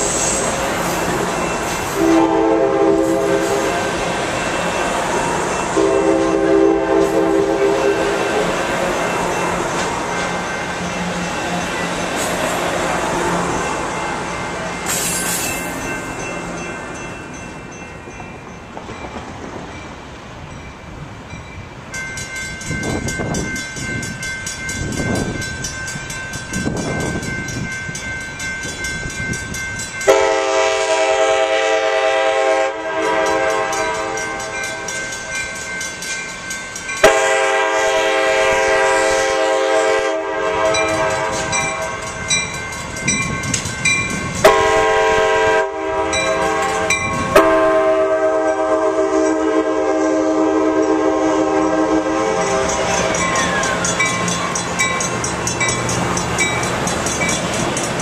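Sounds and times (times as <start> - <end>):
train wheel clatter: 0.0 - 20.1, 33.0 - 38.0, 40.6 - 45.0, 52.4 - 58.0
train high whine: 0.0 - 58.0
train air horn blasts: 1.9 - 4.1, 5.1 - 8.9, 30.1 - 34.9, 37.0 - 42.1, 44.4 - 54.0.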